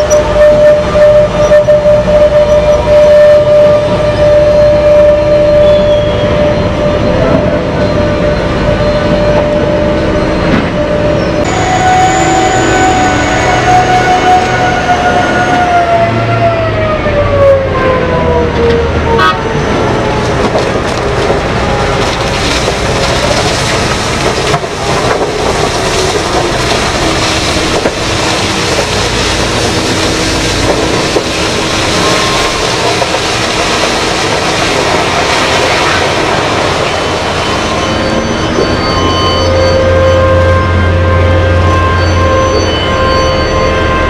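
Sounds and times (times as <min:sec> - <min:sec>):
falling pitched tone: 0:00.0 - 0:19.8
truck engines under load: 0:00.0 - 0:44.0.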